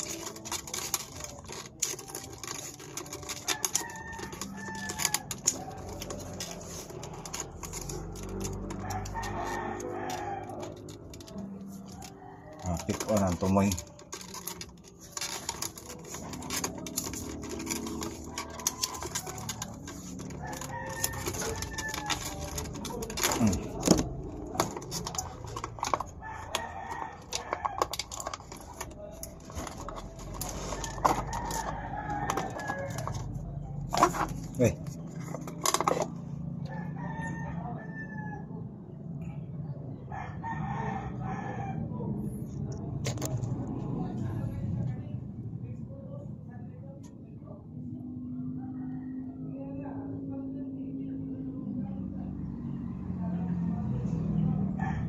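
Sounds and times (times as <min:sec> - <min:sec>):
rooster crowing: 0:07.8 - 0:13.2, 0:17.8 - 0:23.9, 0:30.4 - 0:33.3, 0:36.6 - 0:38.6, 0:40.1 - 0:42.1, 0:54.7 - 0:55.0.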